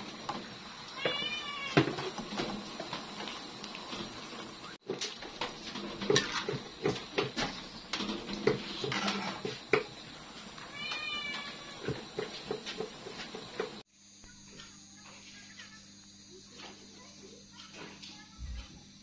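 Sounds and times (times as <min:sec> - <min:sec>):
cat meowing: 0:00.9 - 0:01.8, 0:10.7 - 0:11.9
metal ladle scraping a wok: 0:05.7 - 0:06.8, 0:08.0 - 0:09.6.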